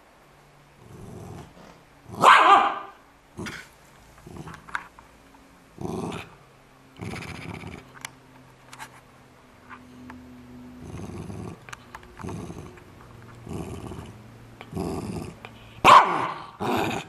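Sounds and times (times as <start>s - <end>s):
dog growling: 0.8s - 2.3s, 3.3s - 4.8s, 5.8s - 6.4s, 7.0s - 8.0s, 10.7s - 17.0s
dog short barks: 2.2s - 3.0s, 15.8s - 16.5s.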